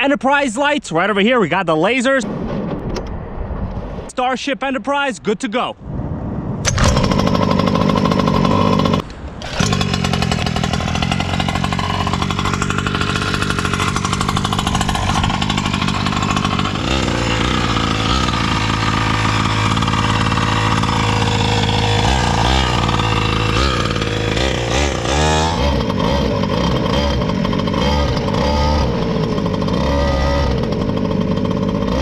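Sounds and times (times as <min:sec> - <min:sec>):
small two-stroke engine running: 0:06.7 - 0:32.0.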